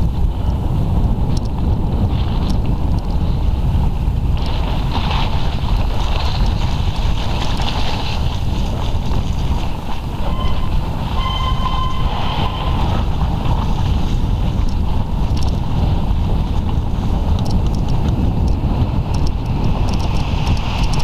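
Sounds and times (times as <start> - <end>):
bike rolling on snow: 0.0 - 21.0
wind buffeting microphone: 0.0 - 21.0
short high squeals: 10.2 - 13.0.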